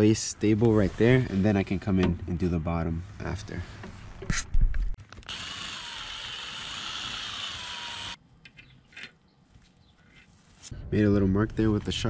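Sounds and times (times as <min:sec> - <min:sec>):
power drill drilling into steel: 0:05.3 - 0:08.2.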